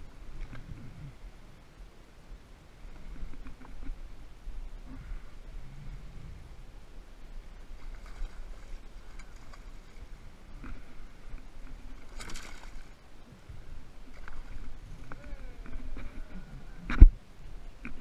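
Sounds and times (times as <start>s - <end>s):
low steady rumble: 0.0s - 18.0s
fish thrashing at water surface: 12.0s - 13.0s.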